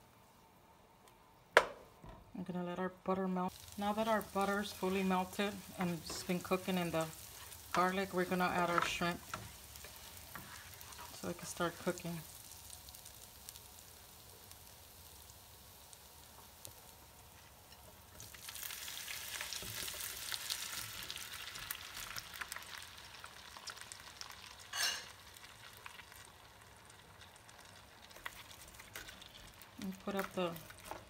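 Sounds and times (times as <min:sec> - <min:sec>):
spatula stirring shrimp: 0:03.5 - 0:14.6, 0:27.9 - 0:31.0
butter sizzling in skillet: 0:03.5 - 0:31.0.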